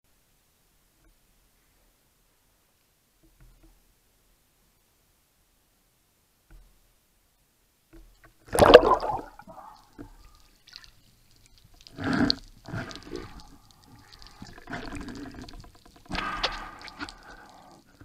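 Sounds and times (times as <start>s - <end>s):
water splashing: 8.4s - 18.0s
muffled underwater rushing and bubbling: 8.5s - 10.0s, 11.8s - 18.0s.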